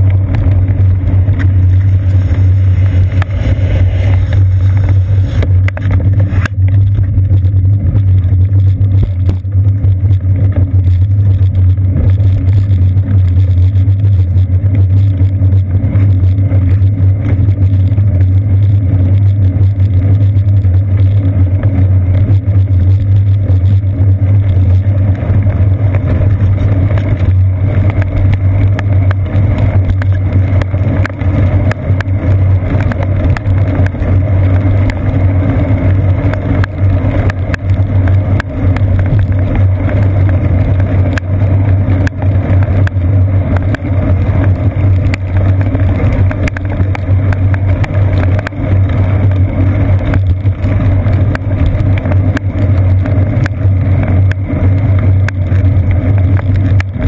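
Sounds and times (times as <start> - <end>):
low drone and rumble: 0.0 - 57.0
small clicks and knocks: 19.0 - 57.0.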